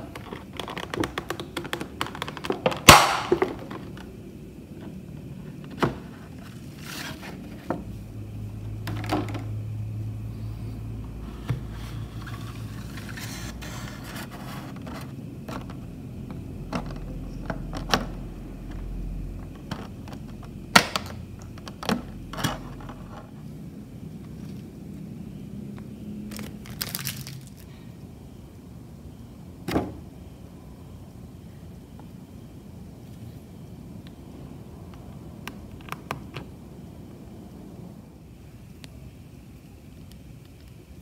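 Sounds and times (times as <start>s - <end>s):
plastic packaging crackling: 0.0s - 4.2s, 26.2s - 27.8s
soft plastic crinkling: 26.2s - 27.8s.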